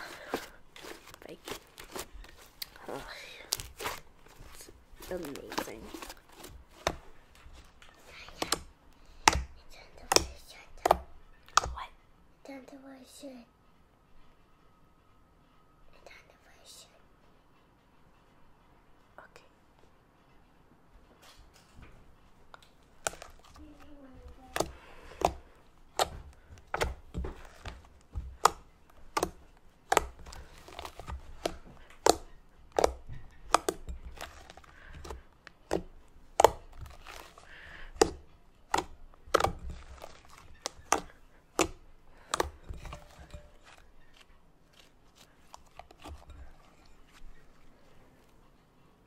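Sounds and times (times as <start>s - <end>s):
slime squishing: 0.0s - 11.9s, 22.5s - 48.4s.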